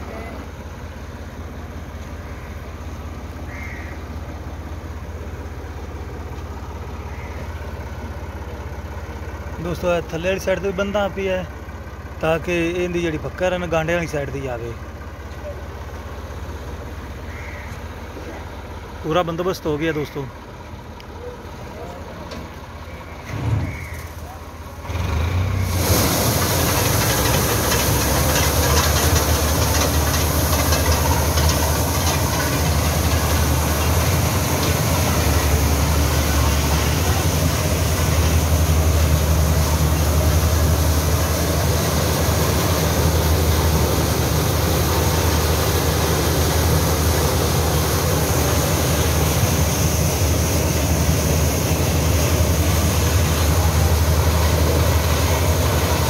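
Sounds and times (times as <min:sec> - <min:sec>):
tractor diesel engine running: 0:00.0 - 0:56.0
maize sheller rattling: 0:25.7 - 0:56.0.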